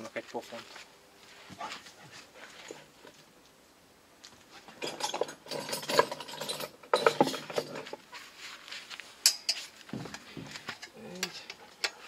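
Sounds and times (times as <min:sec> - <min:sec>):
metal tools clinking and rattling: 0:04.7 - 0:08.0.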